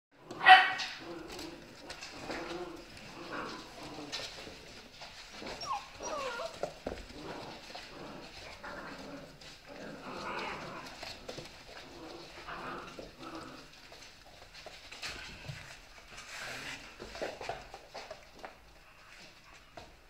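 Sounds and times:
paws scrabbling on wooden floor: 0:00.2 - 0:20.0
puppies whining and yipping: 0:05.2 - 0:06.9.

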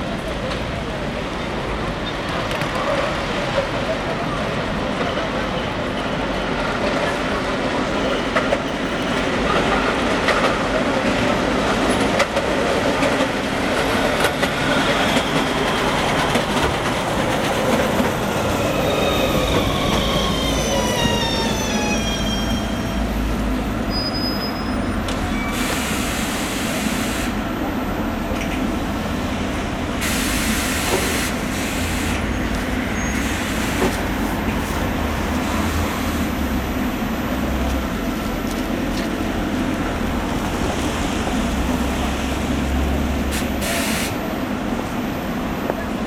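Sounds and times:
tram equipment humming: 0:00.0 - 0:46.0
compressed air hissing: 0:43.3 - 0:44.2.

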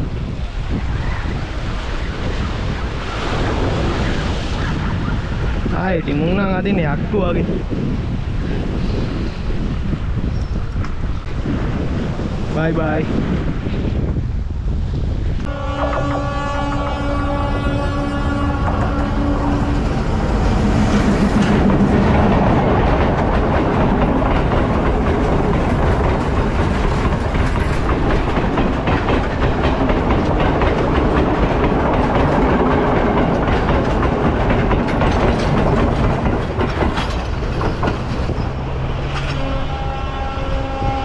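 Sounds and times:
train wheels clattering over rails: 0:15.5 - 0:39.6.

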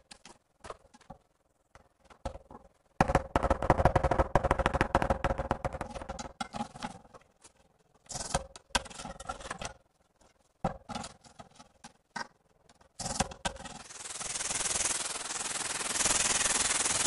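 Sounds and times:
scoring wheel scratching tile: 0:13.0 - 0:17.0.

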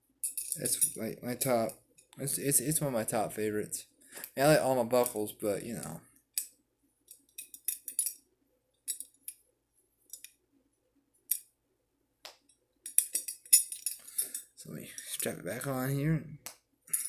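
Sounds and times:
metal belt buckle clicking: 0:06.3 - 0:08.2, 0:08.9 - 0:09.4, 0:10.1 - 0:10.4, 0:12.5 - 0:14.5.

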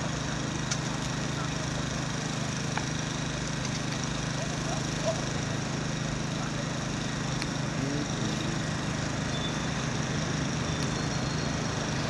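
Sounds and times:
constant low hum: 0:02.4 - 0:12.0.

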